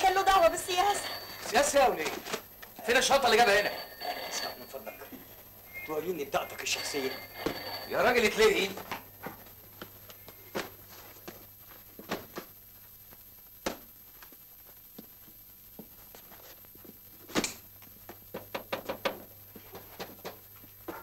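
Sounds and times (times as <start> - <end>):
footsteps in small room: 6.9 - 21.0.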